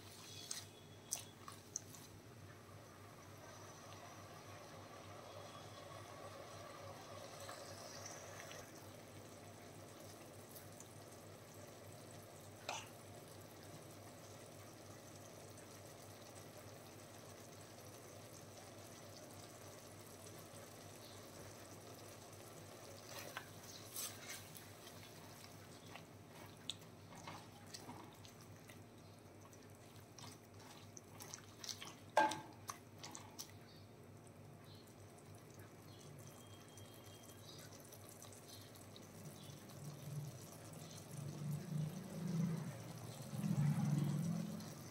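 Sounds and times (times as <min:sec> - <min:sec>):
low steady hiss: 0:00.0 - 0:31.1
liquid drips and pops: 0:25.0 - 0:28.8.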